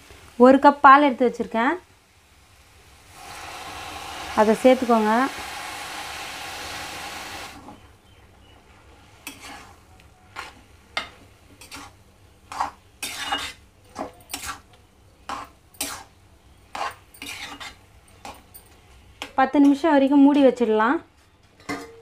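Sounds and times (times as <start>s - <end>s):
metal spatula scraping a pan: 9.2s - 14.7s, 15.3s - 16.1s, 16.7s - 18.4s.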